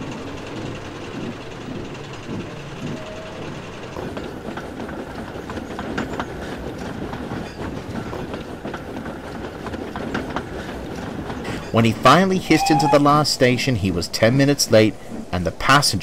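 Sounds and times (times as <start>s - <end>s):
train rumble: 0.0s - 16.0s
train wheels clicking over rail joints: 0.0s - 16.0s.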